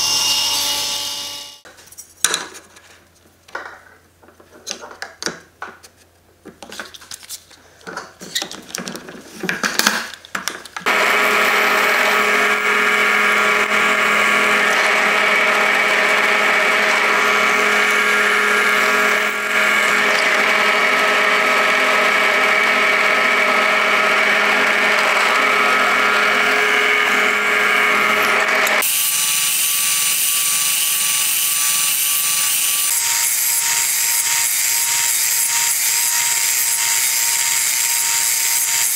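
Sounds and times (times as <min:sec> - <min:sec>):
steady motor: 0:10.9 - 0:38.8.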